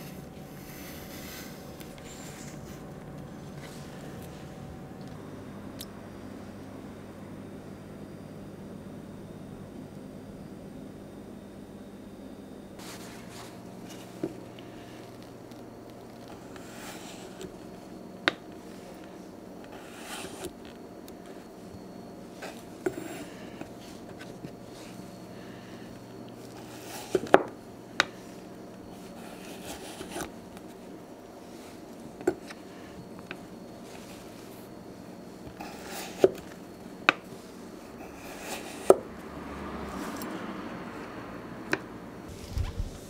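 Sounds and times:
soft brushing: 0:00.0 - 0:04.8, 0:12.8 - 0:15.3, 0:42.3 - 0:43.0.

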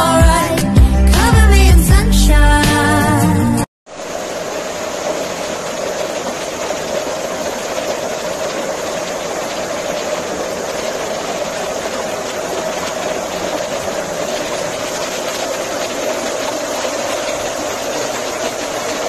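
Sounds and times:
water cascading down rocks: 0:03.9 - 0:19.0.

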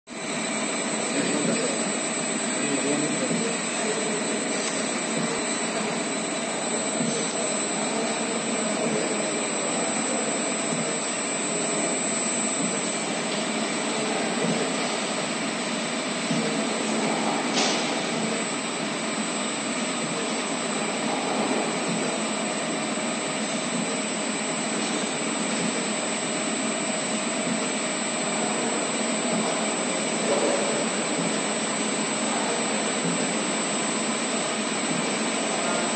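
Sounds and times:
paddle mixer churning powder: 0:00.1 - 0:13.8
high-pitched whine: 0:00.1 - 0:35.9.

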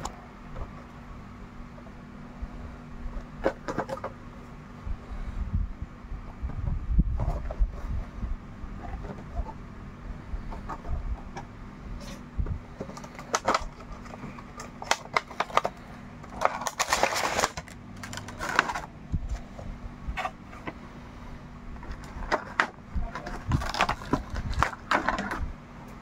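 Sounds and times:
faint steady hum: 0:00.0 - 0:26.0
cardboard box and plastic tray handled: 0:10.5 - 0:19.6.

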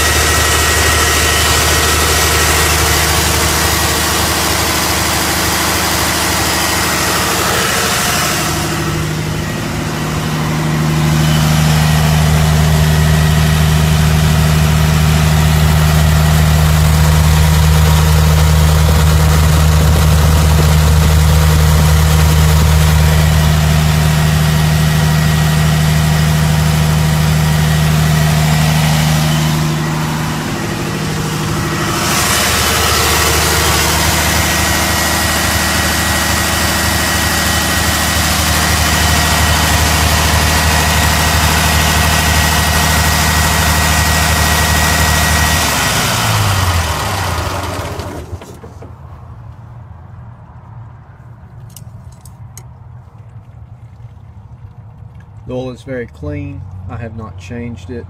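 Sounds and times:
diesel engine idling: 0:00.0 - 0:50.1.

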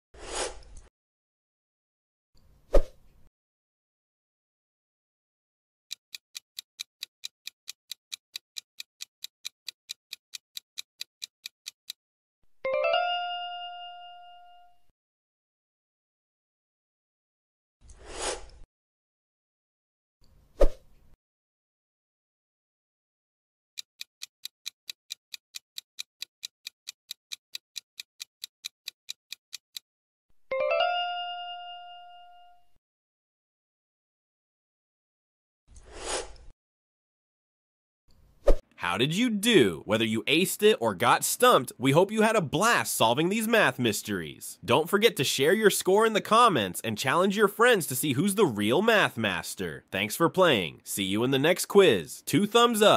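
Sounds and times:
clock-like timer ticks: 0:05.9 - 0:12.0, 0:23.8 - 0:29.9.

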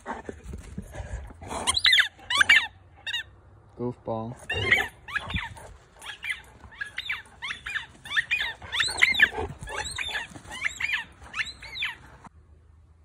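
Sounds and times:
dog yipping: 0:01.6 - 0:03.3, 0:04.5 - 0:12.2.

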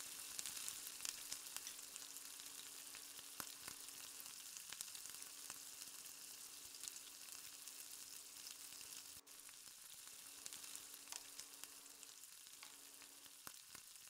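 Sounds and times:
oil sizzling in a pan: 0:00.0 - 0:14.0.

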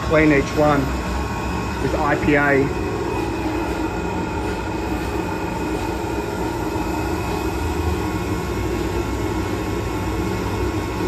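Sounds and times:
machinery drone: 0:00.0 - 0:11.0.

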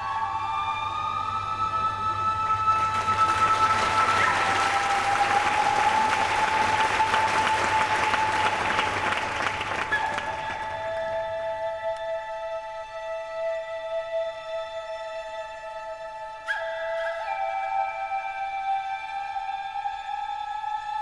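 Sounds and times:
slow music with held notes: 0:00.0 - 0:21.0
audience applauding: 0:02.7 - 0:11.2.

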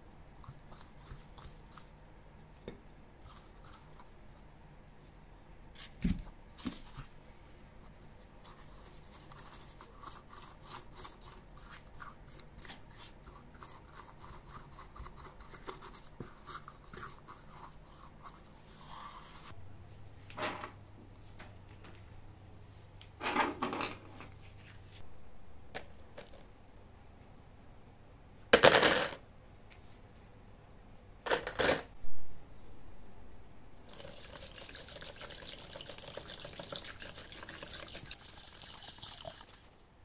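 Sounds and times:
faint steady hum: 0:00.0 - 0:40.0.

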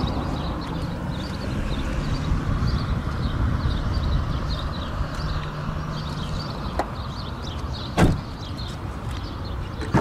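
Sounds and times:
car door thump: 0:08.0 - 0:08.3.

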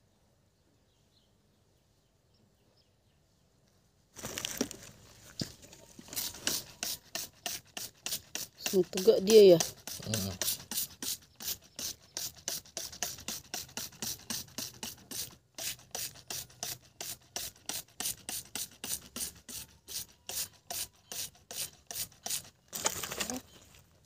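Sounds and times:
spray bottle squirts: 0:06.1 - 0:22.5.

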